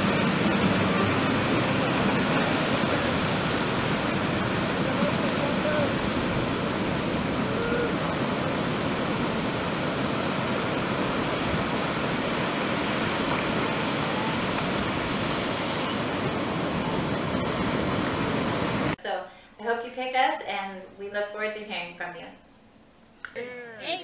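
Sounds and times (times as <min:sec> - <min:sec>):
ocean waves breaking: 0:00.0 - 0:19.0.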